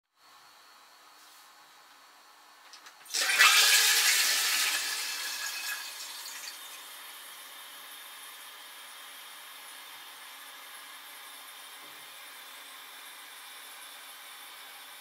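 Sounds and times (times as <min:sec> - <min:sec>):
toilet flushing: 0:03.0 - 0:06.9
toilet tank refilling hiss: 0:03.1 - 0:07.2.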